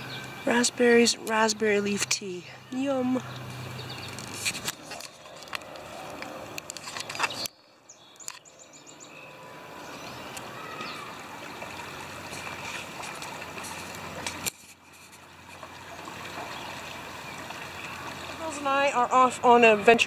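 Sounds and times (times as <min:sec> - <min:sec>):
small birds chirping: 0:00.0 - 0:15.2
flowing water: 0:00.0 - 0:20.0.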